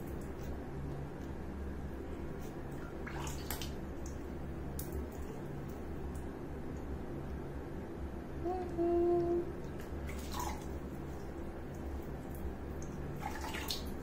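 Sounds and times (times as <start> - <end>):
low background hum: 0.0 - 14.0
water dripping and splashing: 2.4 - 6.3, 9.6 - 14.0
brief low tone: 8.4 - 9.5.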